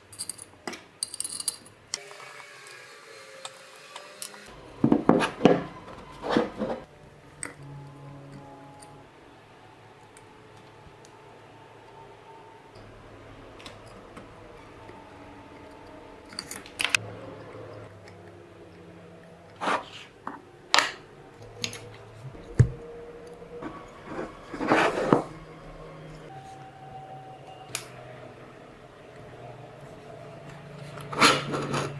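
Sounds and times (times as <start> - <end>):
small parts clicking and tapping: 0.0 - 2.8, 15.6 - 17.0
rustling scrape: 19.6 - 20.2, 23.6 - 25.4.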